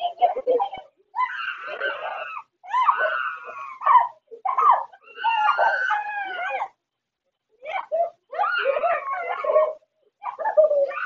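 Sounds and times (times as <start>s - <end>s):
dog whining and yelping: 1.2s - 6.7s, 8.4s - 11.0s.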